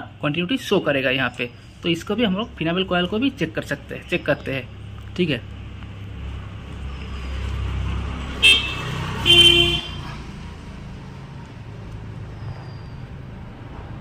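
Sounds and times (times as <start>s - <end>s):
vehicle passing with low rumble: 2.2s - 14.0s
high-pitched horn tooting: 8.4s - 10.1s.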